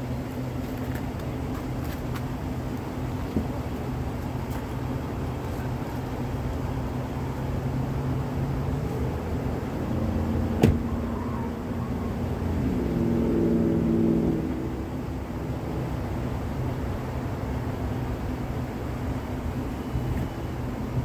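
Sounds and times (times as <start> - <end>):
freight train rumbling: 0.0 - 1.4
pitched engine hum: 0.0 - 21.0.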